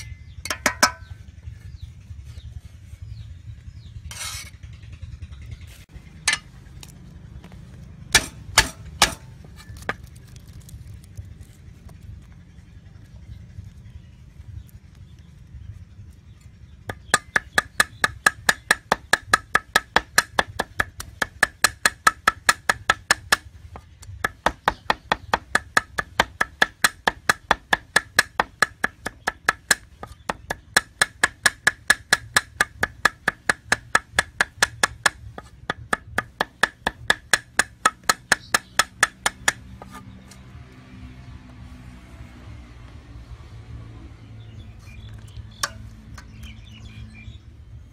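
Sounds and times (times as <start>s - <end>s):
cleaver chopping on wooden block: 8.1s - 10.0s, 16.9s - 40.1s.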